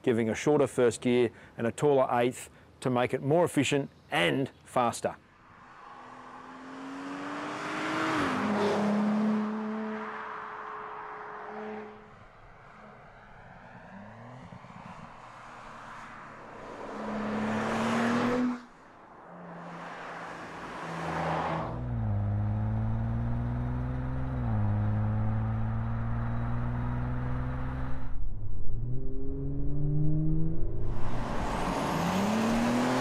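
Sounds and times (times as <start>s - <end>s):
car engine accelerating: 5.7s - 12.0s, 13.5s - 33.0s.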